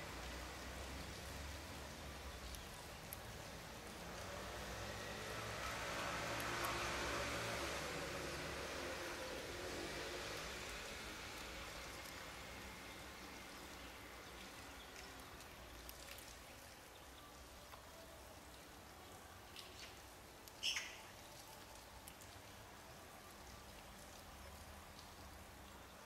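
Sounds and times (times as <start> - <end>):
soft ticks: 2.4 - 3.6.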